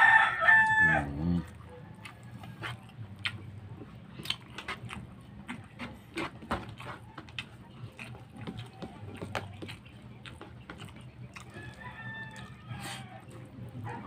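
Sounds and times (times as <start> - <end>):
rooster crowing: 0.0 - 2.7, 11.5 - 13.3
chewing and smacking: 0.0 - 14.0.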